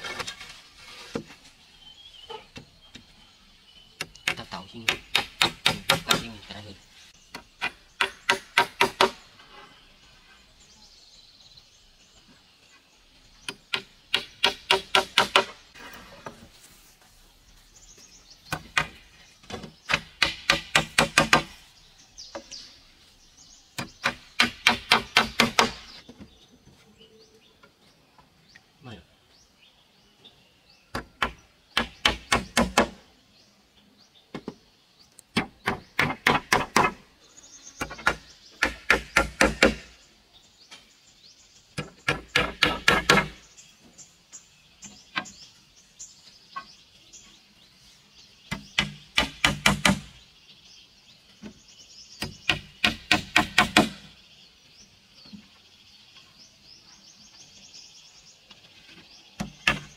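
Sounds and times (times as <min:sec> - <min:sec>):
hammer driving nails into wood: 0:04.0 - 0:06.3, 0:13.5 - 0:15.6, 0:19.9 - 0:21.5, 0:23.8 - 0:25.9, 0:30.9 - 0:33.0, 0:37.8 - 0:39.9, 0:41.8 - 0:43.4, 0:48.5 - 0:50.1, 0:52.2 - 0:54.1.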